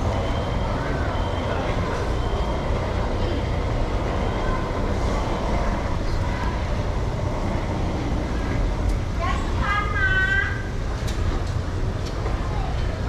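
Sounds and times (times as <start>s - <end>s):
low traffic rumble: 0.0s - 13.0s.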